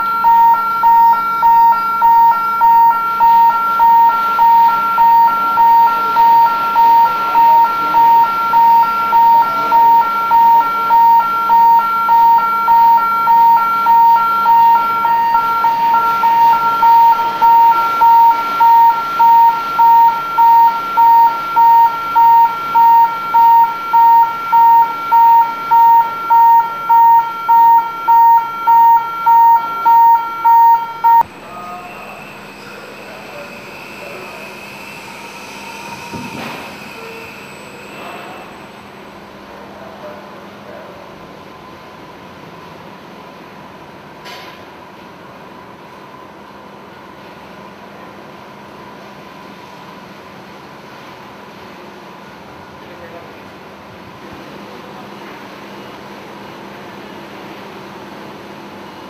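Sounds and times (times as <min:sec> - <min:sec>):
high electronic warning beeps: 0:00.0 - 0:31.3.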